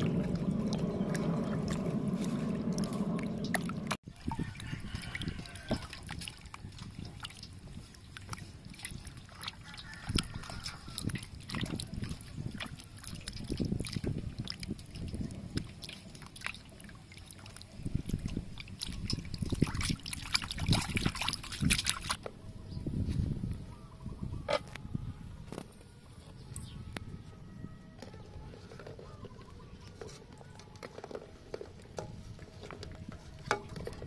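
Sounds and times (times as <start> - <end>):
water dripping: 0.0 - 22.2
water sloshing in metal basin: 0.0 - 22.2, 28.0 - 34.0.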